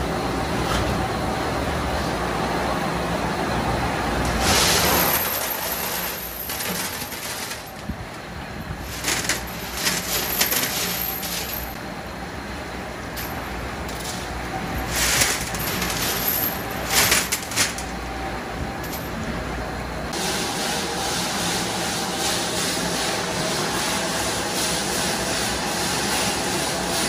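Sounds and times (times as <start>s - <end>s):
low machine hum: 0.0s - 27.0s
screws clattering on metal tray: 4.3s - 7.9s, 8.8s - 11.8s, 14.9s - 17.9s.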